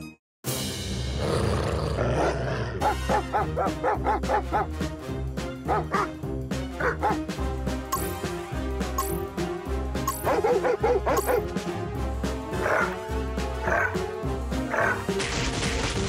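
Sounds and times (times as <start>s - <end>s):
cartoon background music: 0.0s - 16.0s
cartoon dog yelping barks: 2.2s - 4.7s, 5.6s - 6.1s, 6.8s - 7.2s, 10.1s - 11.4s.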